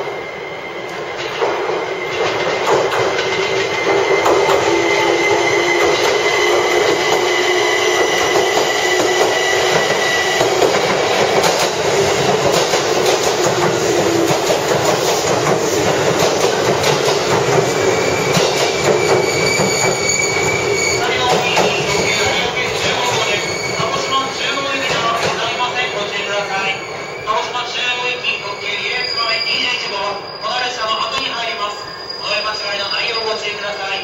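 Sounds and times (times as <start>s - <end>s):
high-pitched wheel squeal: 3.4s - 10.7s, 17.7s - 24.8s, 26.2s - 34.0s.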